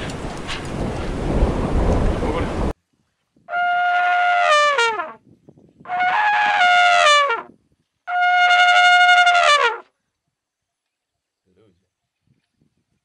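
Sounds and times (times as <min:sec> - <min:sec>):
elephant trumpeting: 0:05.9 - 0:07.4, 0:08.1 - 0:09.8.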